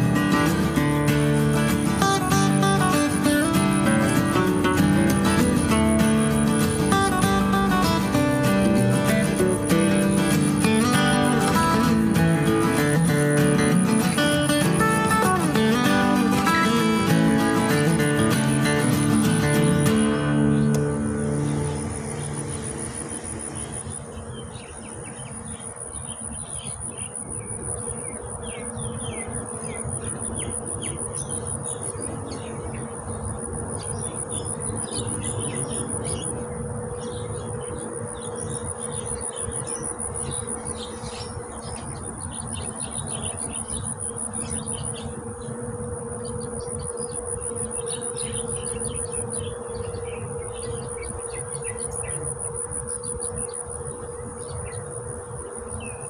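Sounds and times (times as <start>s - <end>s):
insects trilling: 0.0s - 56.0s
short insect chirps: 0.0s - 56.0s
low steady hum: 14.8s - 56.0s.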